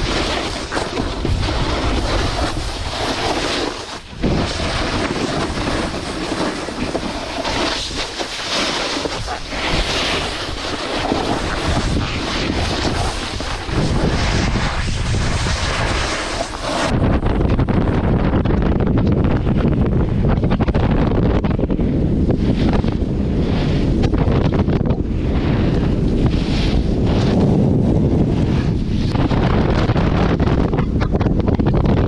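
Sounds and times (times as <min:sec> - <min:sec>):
snowboard edge scraping snow: 0:00.0 - 0:17.2, 0:22.2 - 0:30.6
wind rushing over microphone: 0:00.0 - 0:32.0.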